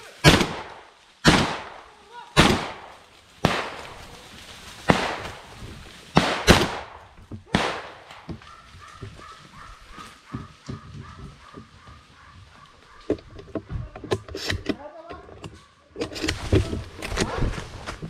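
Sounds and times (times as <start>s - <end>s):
shotgun shots echoing: 0.2s - 4.0s, 4.9s - 5.5s, 6.1s - 8.3s.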